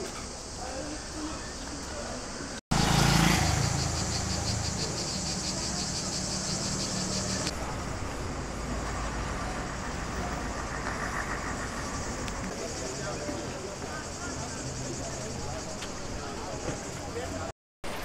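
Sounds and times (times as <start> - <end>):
cicadas buzzing: 0.0 - 17.5
car engine humming: 2.7 - 7.5.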